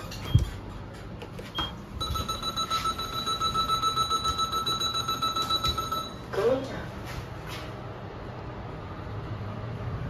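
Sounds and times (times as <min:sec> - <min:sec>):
lift buzzer pulsing high beep: 0:01.6 - 0:06.3.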